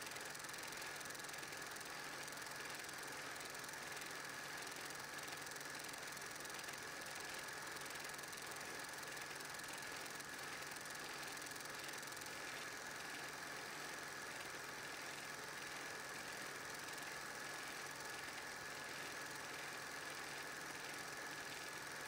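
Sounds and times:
film projector whirring: 0.0 - 22.0.

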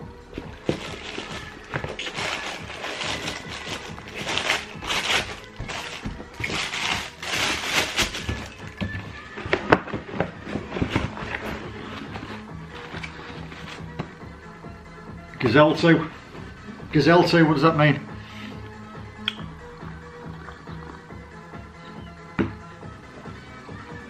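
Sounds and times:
background music: 0.0 - 24.0
packaging rustling: 0.4 - 14.0.

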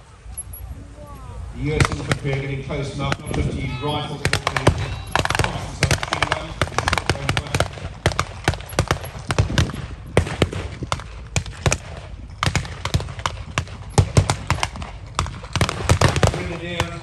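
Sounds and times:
gunfire shots: 1.6 - 17.0.

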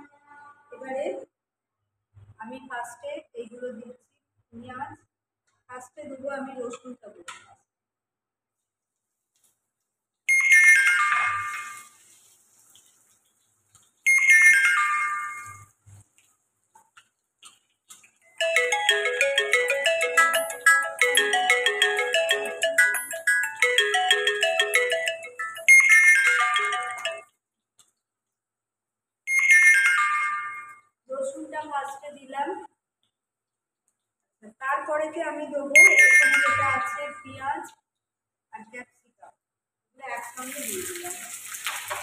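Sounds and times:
tinkling ringtone melody: 10.3 - 12.0, 14.1 - 15.8, 18.4 - 27.4, 29.3 - 31.0, 35.8 - 37.3
electronic chime falling notes: 18.4 - 27.2.

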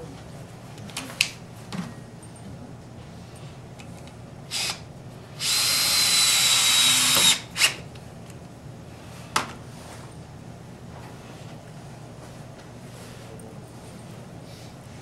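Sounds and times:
cordless drill whining: 4.5 - 4.8, 5.4 - 7.8.

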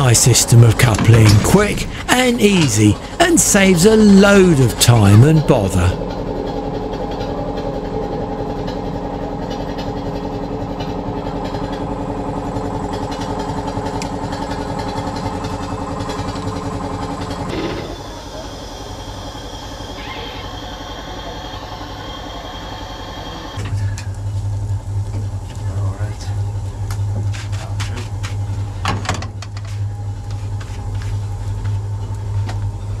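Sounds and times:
air compressor humming: 0.0 - 33.0.

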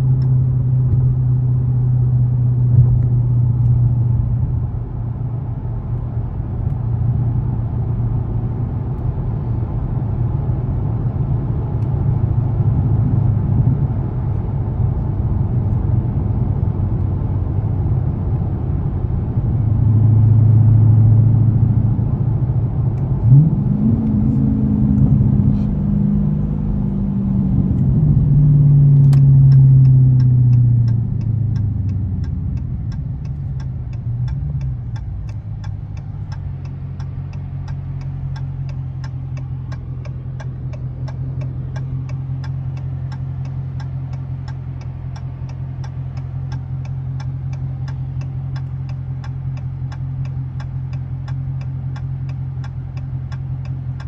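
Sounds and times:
turn signal ticking: 0.0 - 1.2, 27.6 - 54.0
car engine slowing and idling: 0.0 - 54.0.

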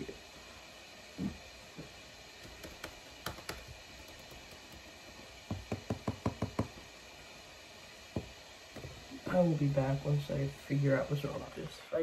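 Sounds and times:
faint laptop hiss: 0.0 - 12.0
laptop keys clicking: 2.4 - 4.8.

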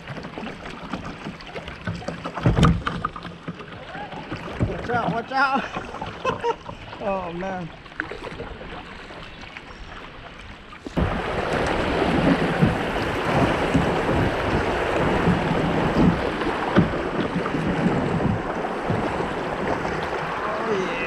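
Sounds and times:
water lapping: 0.0 - 21.0
river rushing and splashing: 10.6 - 21.0.

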